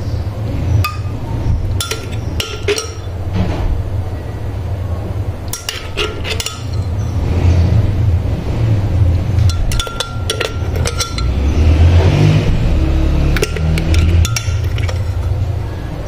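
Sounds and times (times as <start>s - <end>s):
steady low hum: 0.0s - 16.0s
metal spoon clinking glass: 1.8s - 3.1s, 5.5s - 7.1s, 9.4s - 11.6s, 13.3s - 15.5s.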